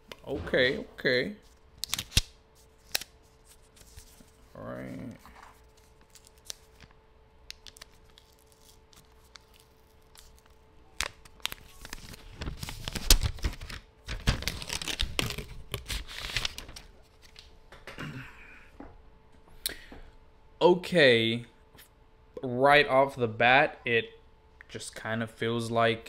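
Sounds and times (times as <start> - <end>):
paper packaging tearing and rustling: 1.4 - 6.9, 7.5 - 17.4.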